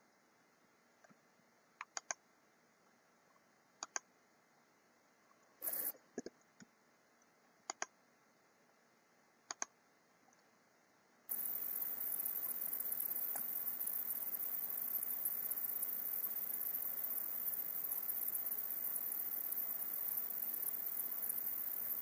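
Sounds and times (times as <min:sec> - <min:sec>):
computer mouse clicks: 0:01.8 - 0:02.2, 0:03.8 - 0:04.1, 0:05.6 - 0:06.7, 0:07.7 - 0:07.9, 0:09.5 - 0:09.7, 0:13.0 - 0:13.6
steady hiss: 0:05.6 - 0:06.1, 0:11.3 - 0:22.0.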